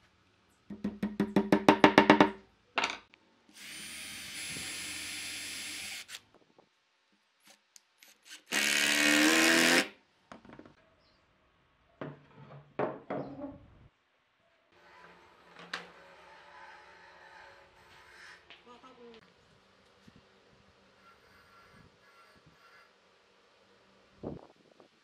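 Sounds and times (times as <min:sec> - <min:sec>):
hammer tapping on wood: 0:00.7 - 0:02.4
wood knocking: 0:00.7 - 0:03.0
cordless drill driving screw: 0:03.6 - 0:06.2, 0:07.5 - 0:09.9.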